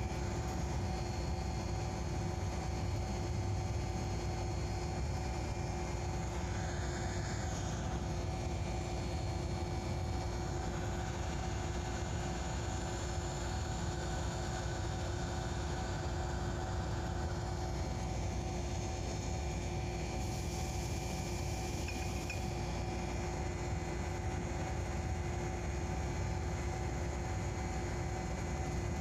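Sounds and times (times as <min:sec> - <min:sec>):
steady hum tones: 0:00.0 - 0:29.0.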